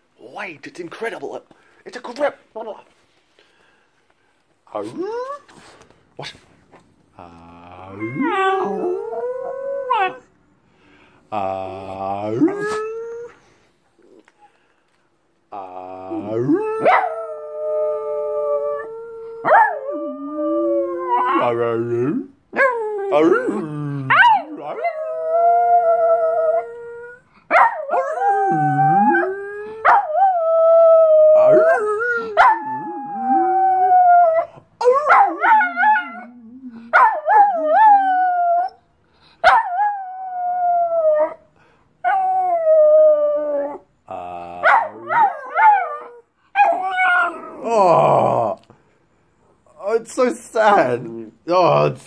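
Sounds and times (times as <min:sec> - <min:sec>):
small dog howling: 0:07.8 - 0:10.2, 0:16.0 - 0:21.6, 0:27.6 - 0:38.8, 0:42.1 - 0:48.4.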